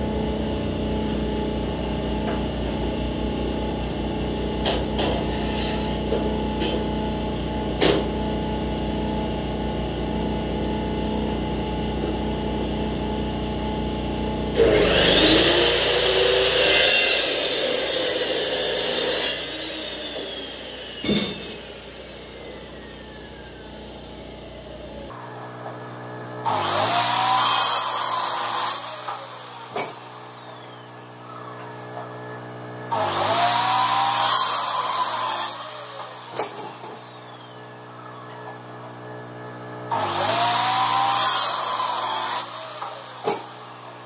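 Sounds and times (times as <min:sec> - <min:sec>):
steady mechanical hum: 0:00.0 - 0:44.0
chop saw cutting steel: 0:04.6 - 0:07.0, 0:14.5 - 0:24.2, 0:25.0 - 0:44.0
metal clank: 0:21.0 - 0:21.7.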